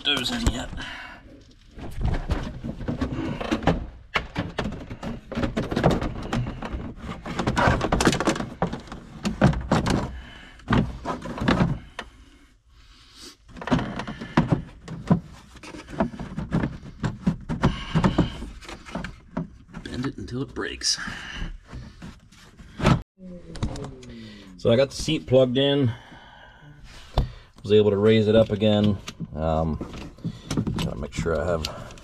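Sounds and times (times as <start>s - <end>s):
plastic panels knocking and clicking: 1.9s - 12.1s, 13.5s - 20.0s.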